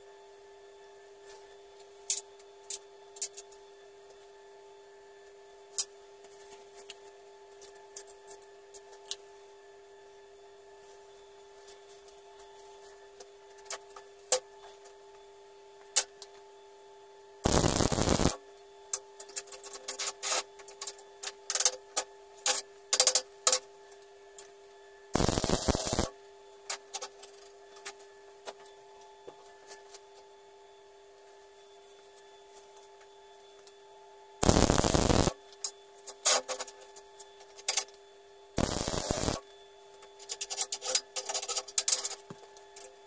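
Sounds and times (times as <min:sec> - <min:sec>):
faint steady hum: 0:00.0 - 0:43.0
welding crackling bursts: 0:17.5 - 0:18.4, 0:25.2 - 0:26.1, 0:34.4 - 0:35.4, 0:38.6 - 0:39.4.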